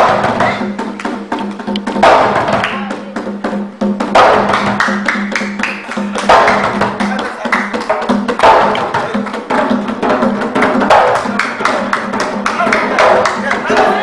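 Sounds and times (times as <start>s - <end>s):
clicking percussion strikes: 0.0s - 2.8s.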